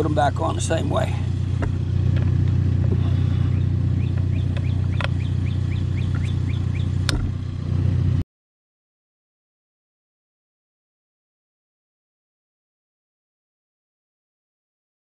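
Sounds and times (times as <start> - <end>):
low engine drone: 0.0 - 8.2
bird chirping: 3.0 - 7.1
sharp clicks: 4.1 - 5.2.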